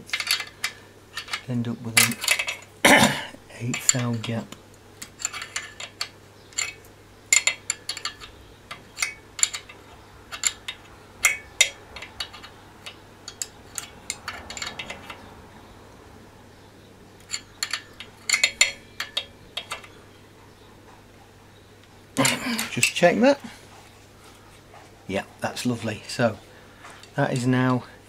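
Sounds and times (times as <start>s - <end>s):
spanner clicking against metal nut: 3.7s - 15.3s, 17.2s - 20.0s.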